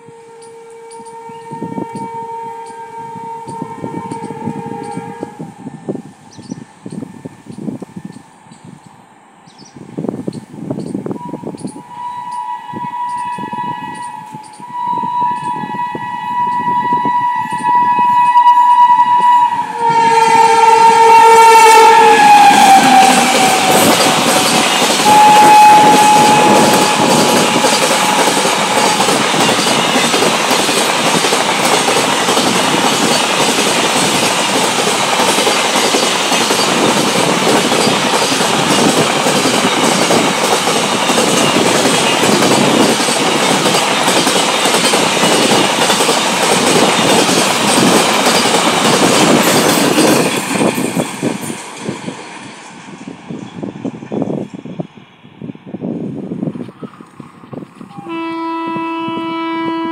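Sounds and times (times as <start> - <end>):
locomotive horn blast: 0.0 - 5.7, 11.2 - 30.2, 57.9 - 59.9
freight train wagons rolling past: 0.0 - 55.0.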